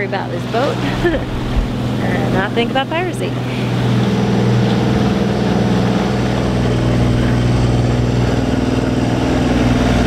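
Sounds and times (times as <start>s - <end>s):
boat engine droning: 0.0s - 10.0s.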